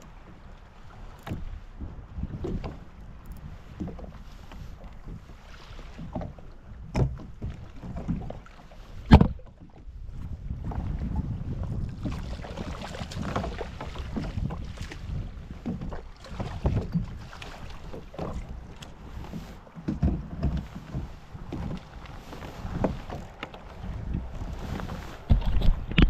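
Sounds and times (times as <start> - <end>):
water sloshing against kayak: 0.0 - 26.0
wind on microphone: 0.0 - 26.0
splashes: 12.0 - 19.6.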